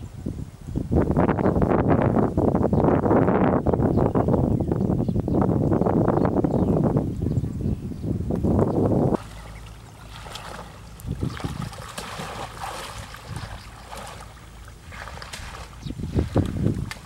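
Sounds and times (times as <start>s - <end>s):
low rumbling: 0.0s - 17.0s
water sloshing and splashing: 9.2s - 17.0s.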